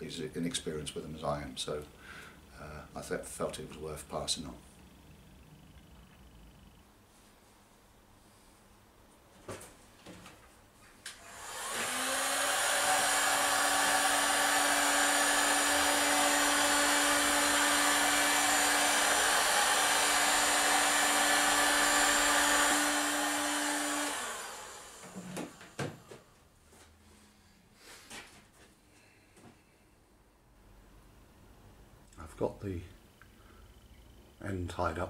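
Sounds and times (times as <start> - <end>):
heat gun blowing air: 11.1 - 26.1.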